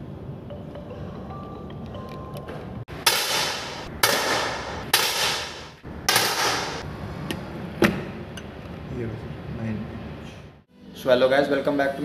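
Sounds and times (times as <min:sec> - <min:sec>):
loud crack: 0:02.9 - 0:06.8
sharp shot-like bursts: 0:03.0 - 0:06.8.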